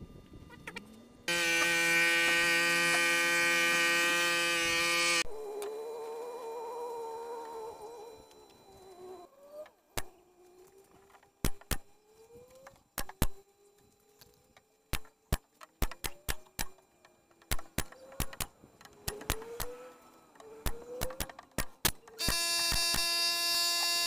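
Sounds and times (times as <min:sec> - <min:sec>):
loud steady buzz: 0:00.0 - 0:09.3, 0:16.1 - 0:24.0
nail gun shots into wood: 0:20.6 - 0:23.1.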